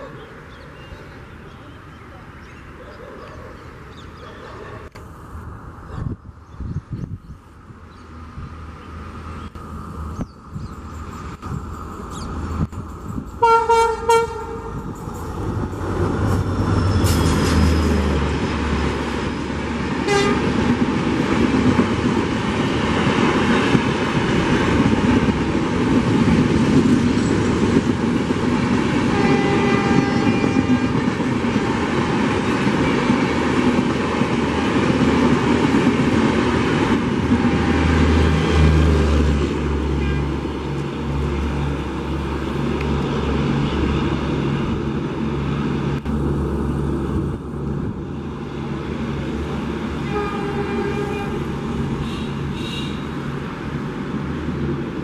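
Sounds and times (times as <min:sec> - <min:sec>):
train engine rumble: 0:00.0 - 0:55.0
wheels clattering on rail: 0:10.2 - 0:39.7
locomotive horn blasts: 0:13.4 - 0:14.9, 0:20.0 - 0:20.6, 0:29.1 - 0:31.0, 0:37.3 - 0:38.4, 0:50.0 - 0:53.2.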